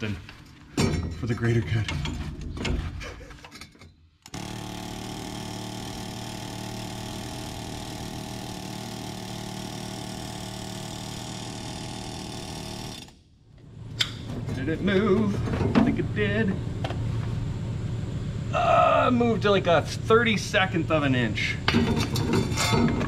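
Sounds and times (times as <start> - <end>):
pneumatic air hammer hammering: 4.3 - 13.2.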